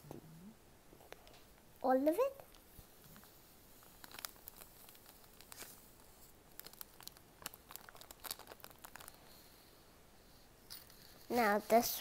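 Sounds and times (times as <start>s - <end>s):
candy packet crinkling and tearing: 3.8s - 9.4s.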